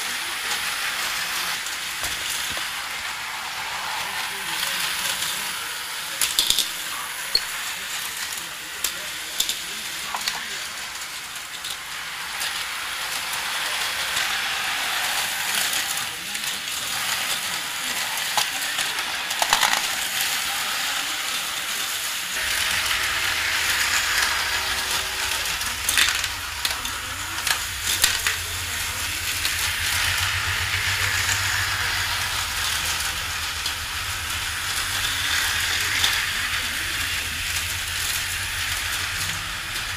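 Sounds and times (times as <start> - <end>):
slot car motor whirring: 0.0 - 39.9
low hum: 22.4 - 39.9.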